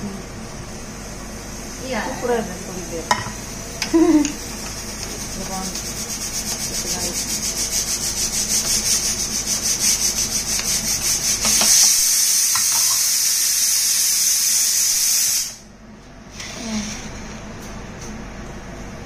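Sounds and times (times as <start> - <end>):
high hiss: 5.6 - 15.7.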